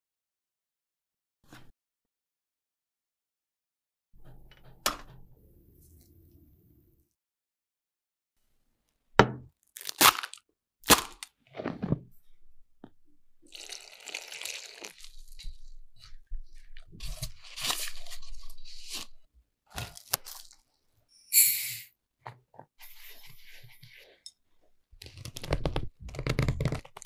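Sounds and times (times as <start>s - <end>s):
water poured onto flour: 13.5s - 15.4s.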